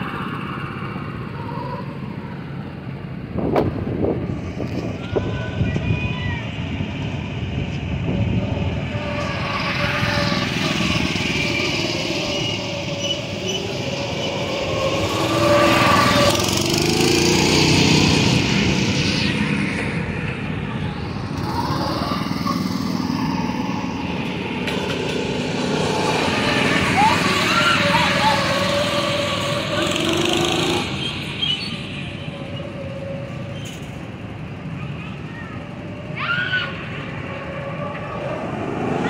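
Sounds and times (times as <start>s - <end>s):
go-kart engine passing: 8.6s - 39.0s.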